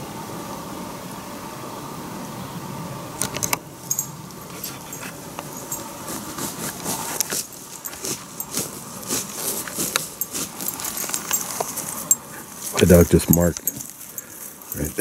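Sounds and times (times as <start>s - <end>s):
idling van engine hum: 1.6s - 15.0s
footsteps through undergrowth: 4.3s - 15.0s
twigs crackling and snapping: 6.7s - 14.9s.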